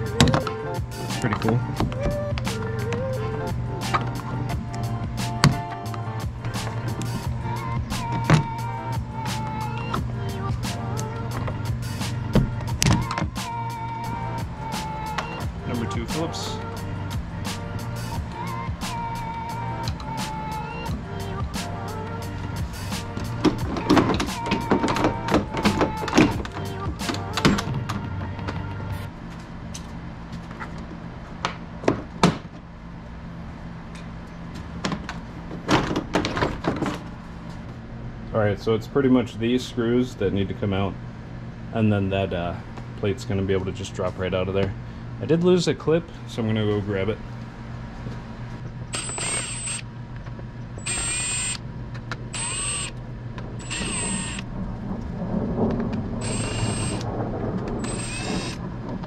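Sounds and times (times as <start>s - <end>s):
impact driver motor whining: 48.9s - 49.9s, 50.8s - 51.6s, 52.3s - 53.0s, 53.6s - 54.5s, 56.2s - 57.0s, 57.8s - 58.6s.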